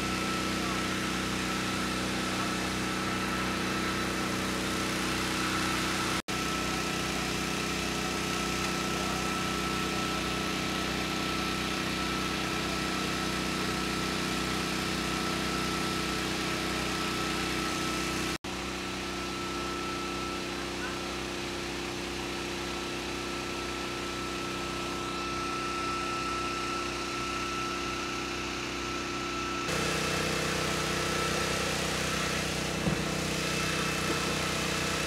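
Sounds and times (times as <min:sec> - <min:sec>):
fire engine idling: 0:00.0 - 0:35.0
thin steady whine: 0:18.7 - 0:35.0.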